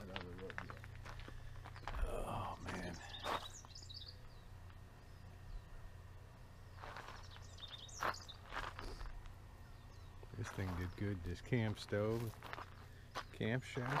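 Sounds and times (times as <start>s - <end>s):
birds chirping: 0.0s - 14.0s
steady low hum: 0.0s - 14.0s.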